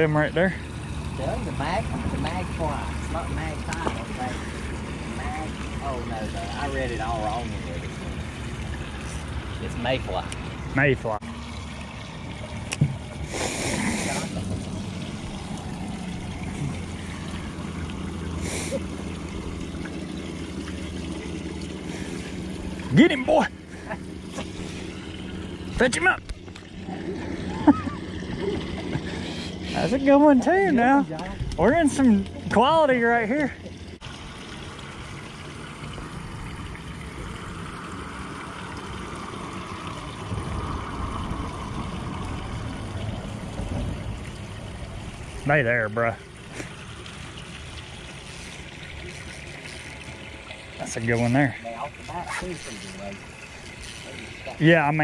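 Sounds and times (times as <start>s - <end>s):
steady low hum: 0.0s - 54.9s
water lapping against hull: 0.0s - 55.0s
short hiss: 13.3s - 14.3s.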